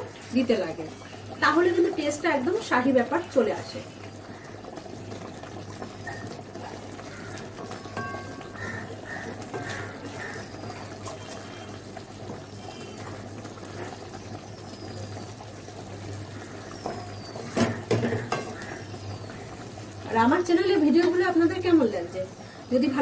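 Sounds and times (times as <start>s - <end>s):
gravy bubbling: 0.0s - 23.0s
spatula knocking against pan: 7.9s - 8.9s, 16.9s - 18.6s.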